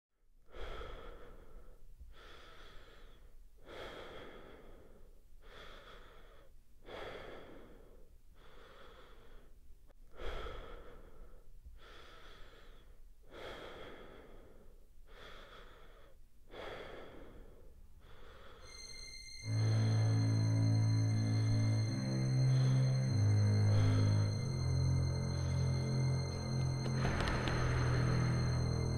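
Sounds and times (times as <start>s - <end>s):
heavy human breathing: 0.4s - 28.9s.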